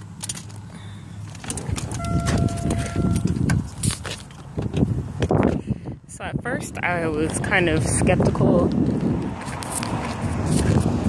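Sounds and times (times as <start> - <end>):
microphone handling noise: 1.5 - 5.7
steady high tone: 1.9 - 3.5.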